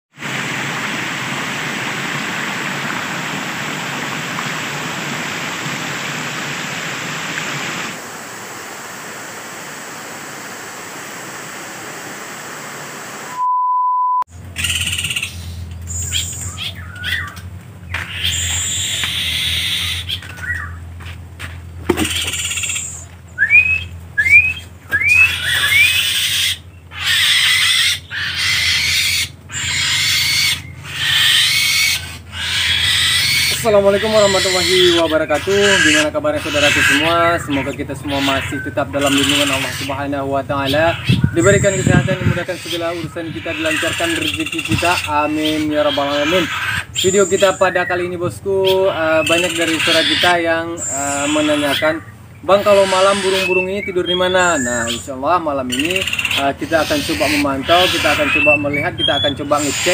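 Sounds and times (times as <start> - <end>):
water splashing over rocks: 0.1 - 13.2
short beep: 13.3 - 14.3
rising bird chirps: 14.5 - 20.9, 22.0 - 59.9.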